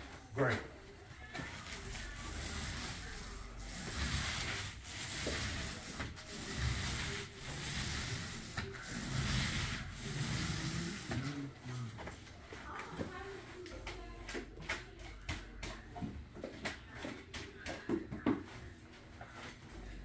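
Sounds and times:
paint roller rubbing hiss: 1.5 - 11.5.

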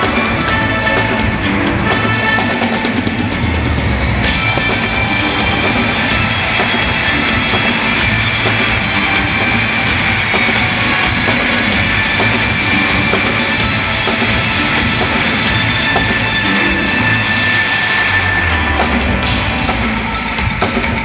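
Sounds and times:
loud rock band playing: 0.0 - 21.0.

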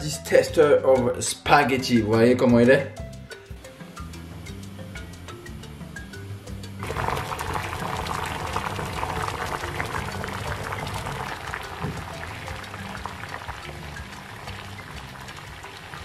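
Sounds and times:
water boiling in a pot: 5.2 - 16.0.

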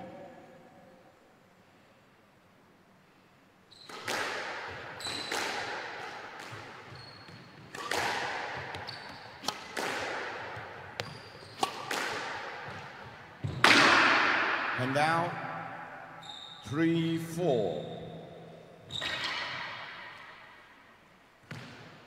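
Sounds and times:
squash ball hitting racket and walls: 3.7 - 16.2, 18.2 - 22.0
shoes squeaking on wooden floor: 6.8 - 7.8, 8.7 - 9.4, 11.0 - 11.7.

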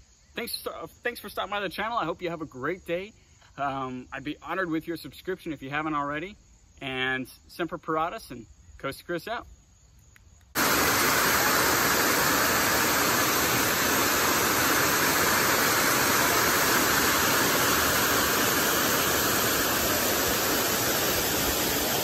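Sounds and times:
waterfall rushing: 10.6 - 22.0.

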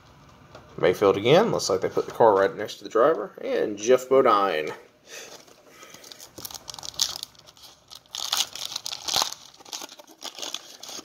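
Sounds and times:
foil wrapper crinkling and tearing: 5.8 - 11.0.

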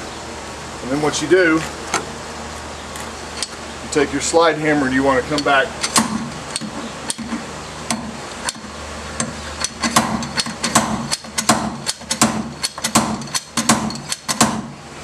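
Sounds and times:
slide hammer clanking: 5.3 - 14.7.

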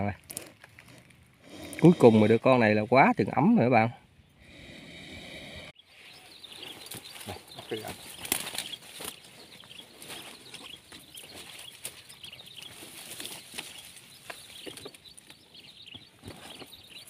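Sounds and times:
faint bird chirps: 5.4 - 17.0
movement through dry leaves: 5.9 - 15.0.

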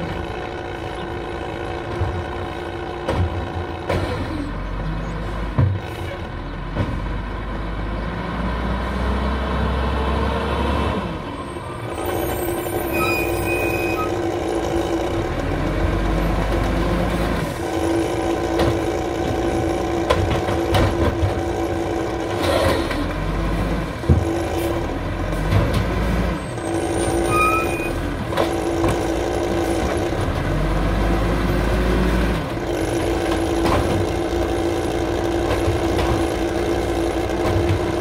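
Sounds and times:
garbage truck diesel engine: 0.0 - 38.0
short high squeal: 11.8 - 14.2, 26.6 - 28.0.

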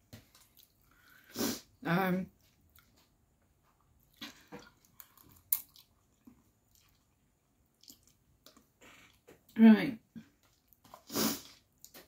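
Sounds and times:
person chewing: 0.2 - 1.3, 2.6 - 3.1, 3.7 - 9.5, 10.4 - 12.0.

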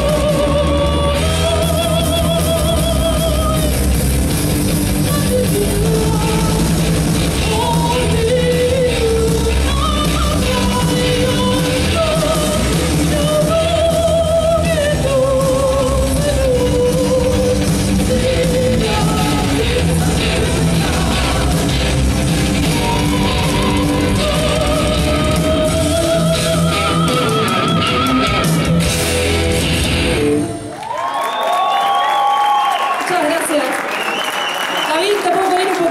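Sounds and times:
woman singing with vibrato: 0.0 - 3.8, 5.0 - 21.9, 22.6 - 28.6
heavy metal band playing: 0.0 - 30.7
crowd cheering: 18.9 - 25.5, 29.8 - 35.9.

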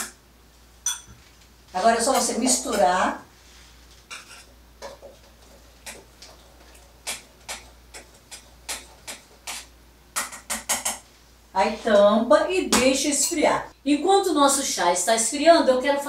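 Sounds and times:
metal spoon clinking in kettle: 0.8 - 1.2.

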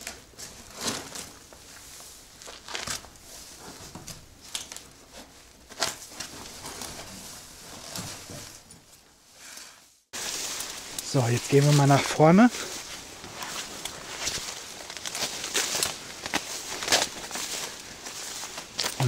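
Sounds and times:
clothing rustling: 0.0 - 19.0
outdoor hiss: 9.2 - 18.9
crawling on gritty dirt: 10.2 - 19.0.

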